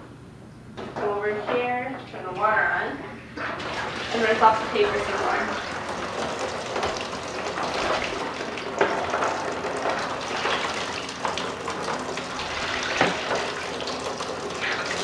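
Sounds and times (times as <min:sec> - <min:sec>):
water sloshing: 0:03.4 - 0:15.0
tap water pouring into a tray: 0:03.5 - 0:15.0.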